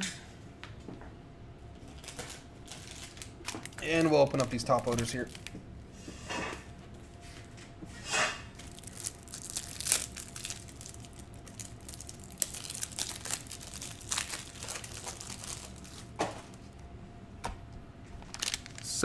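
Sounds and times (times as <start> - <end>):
plastic wrapping crinkling and tearing: 1.8 - 5.6, 8.5 - 16.8, 18.2 - 19.0.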